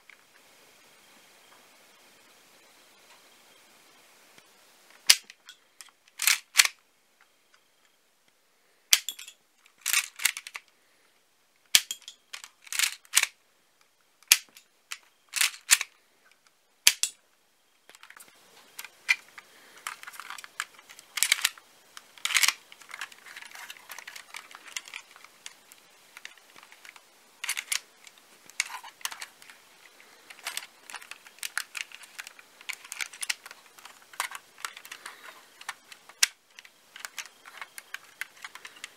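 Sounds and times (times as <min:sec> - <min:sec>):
faint hiss: 0:00.0 - 0:38.9
plastic snaps and clacks: 0:14.2 - 0:15.9.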